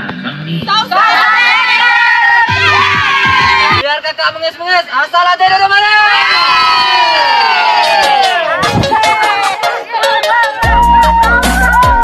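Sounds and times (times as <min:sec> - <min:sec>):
group shouting a cheer: 0:00.7 - 0:03.8, 0:06.0 - 0:12.0.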